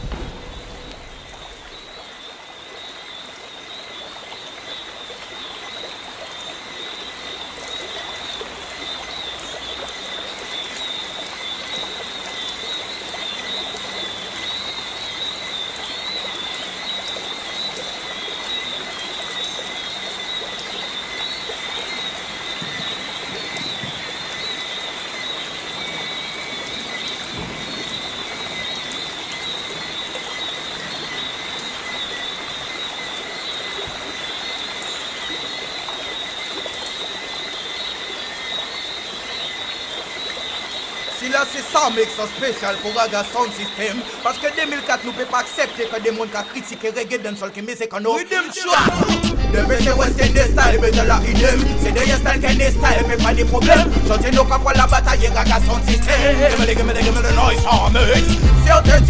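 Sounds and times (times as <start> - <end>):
even hiss: 0.0 - 2.0.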